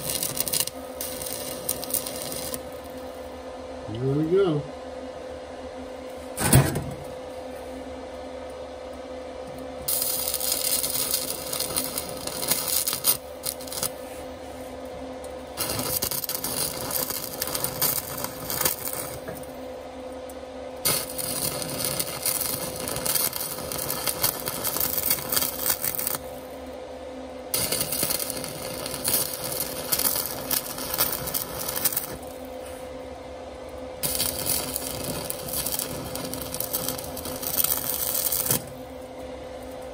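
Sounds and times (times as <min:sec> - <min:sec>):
welding arc crackling: 0:00.0 - 0:03.4, 0:09.5 - 0:14.1, 0:15.4 - 0:19.8, 0:20.8 - 0:26.7, 0:27.5 - 0:32.6, 0:33.7 - 0:39.9
steady hum: 0:00.0 - 0:39.9.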